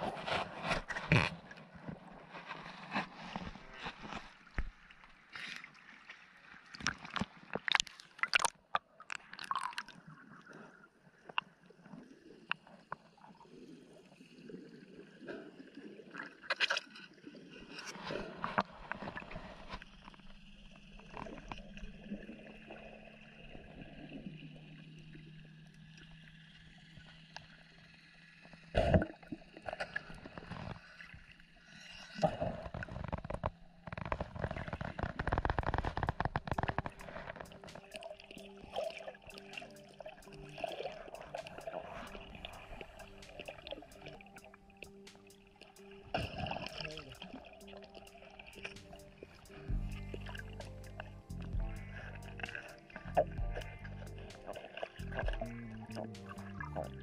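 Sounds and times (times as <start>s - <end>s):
water sloshing and gurgling: 0.0s - 57.0s
sharp water splashes: 36.5s - 57.0s.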